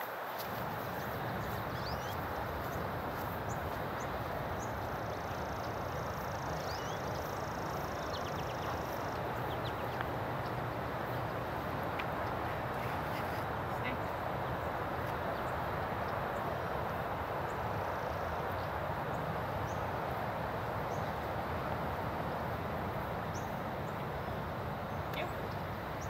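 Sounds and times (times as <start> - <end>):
small birds chirping: 0.8 - 20.0.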